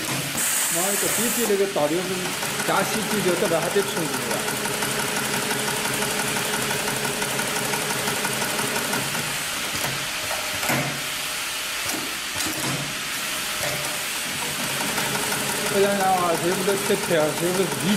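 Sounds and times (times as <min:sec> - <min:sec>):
sewing machine stitching: 0:00.0 - 0:09.3, 0:14.4 - 0:17.9.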